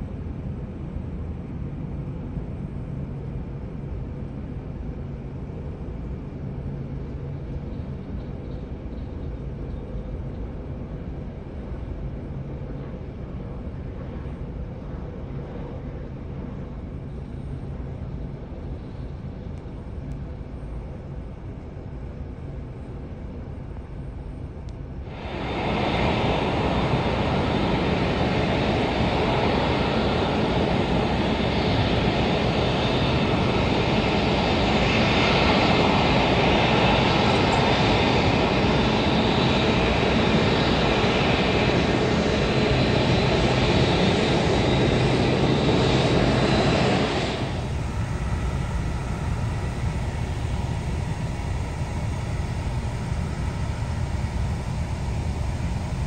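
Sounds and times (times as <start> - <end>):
high jet whine: 25.0 - 56.0
jet engines roaring: 25.1 - 56.0.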